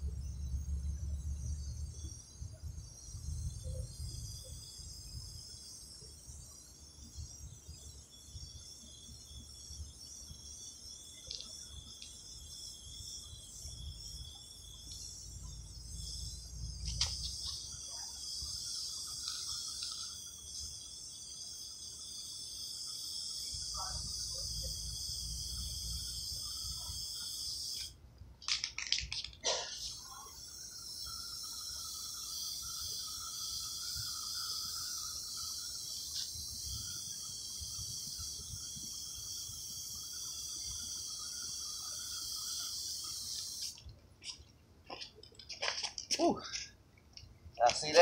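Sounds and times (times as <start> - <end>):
insects chirring: 0.0 - 48.0
spray can hissing: 8.7 - 43.9
sharp clicks and rattles: 11.2 - 12.2, 28.4 - 29.5, 43.4 - 48.0.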